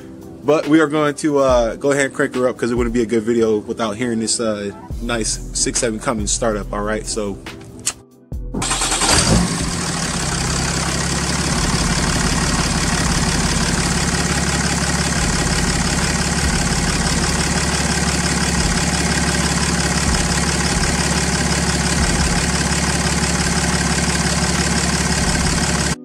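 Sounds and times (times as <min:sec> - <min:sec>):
diesel engine idling: 0:08.6 - 0:26.0.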